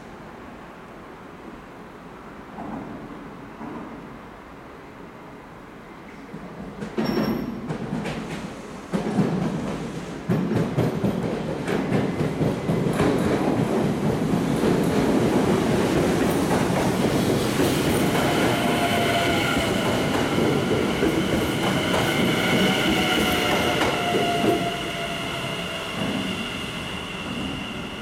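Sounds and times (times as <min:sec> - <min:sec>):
train wheels rumbling on rails: 0:06.1 - 0:28.0.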